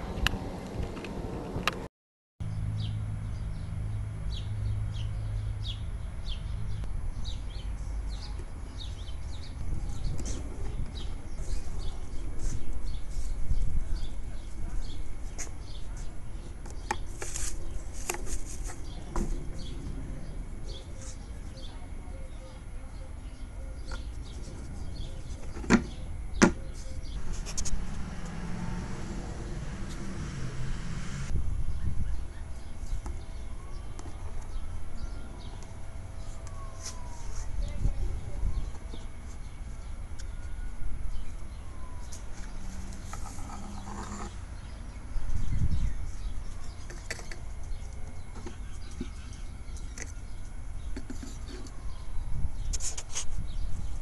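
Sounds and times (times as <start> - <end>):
steady low rumble: 18.8 - 22.8, 27.1 - 33.6.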